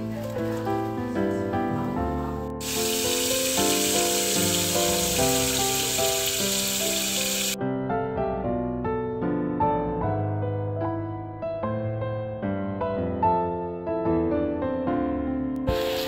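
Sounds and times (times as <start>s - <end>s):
piano background music: 0.0s - 16.0s
tap water pouring into colander: 2.6s - 7.6s, 15.6s - 16.0s.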